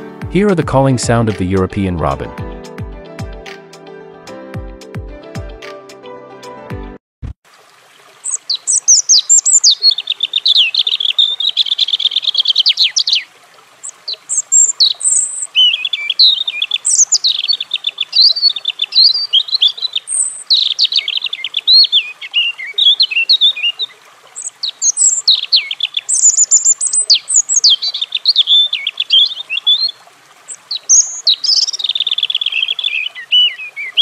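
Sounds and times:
robin twittering: 8.3 - 34.0.

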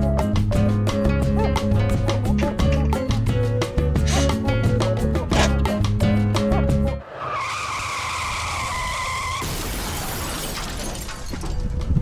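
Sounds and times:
background music: 0.0 - 7.0.

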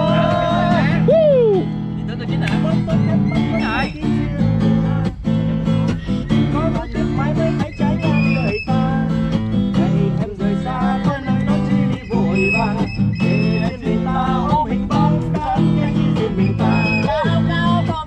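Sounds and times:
acoustic guitar strumming: 0.0 - 18.0.

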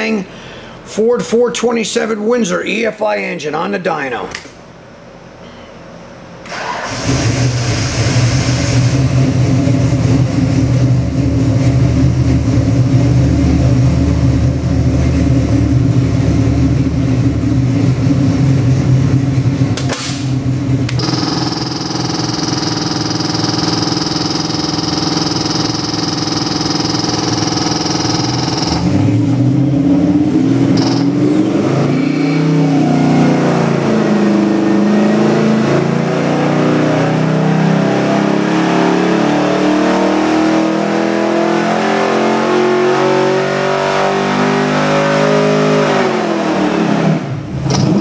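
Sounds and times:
engine idling: 20.4 - 29.6
engine revving at full throttle: 20.9 - 48.0.

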